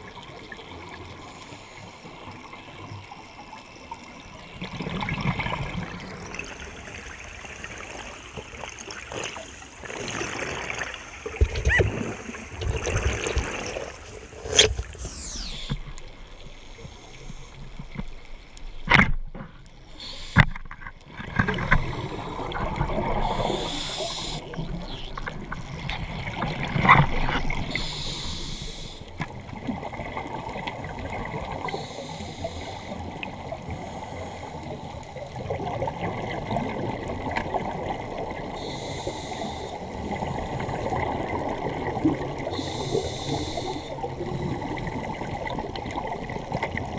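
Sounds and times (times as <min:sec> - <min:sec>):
gurgling exhaust bubbles: 0:04.7 - 0:15.6
regulator hissing breaths: 0:19.9 - 0:20.5, 0:23.4 - 0:24.6, 0:27.7 - 0:29.1, 0:31.6 - 0:33.1, 0:33.7 - 0:35.2, 0:38.6 - 0:40.6, 0:42.5 - 0:44.8.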